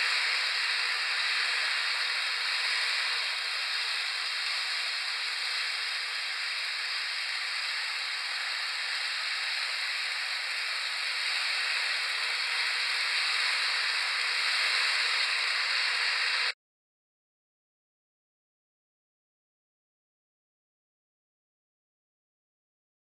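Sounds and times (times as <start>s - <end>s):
faint steady whine: 0.0s - 16.6s
model train wheels hissing on rails: 0.0s - 16.6s.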